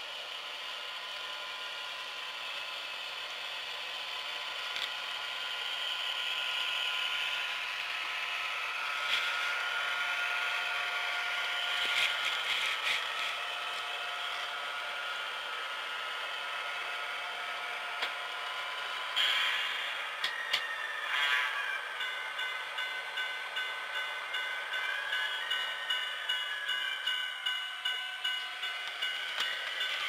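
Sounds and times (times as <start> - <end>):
model train motor whir: 0.0 - 30.0.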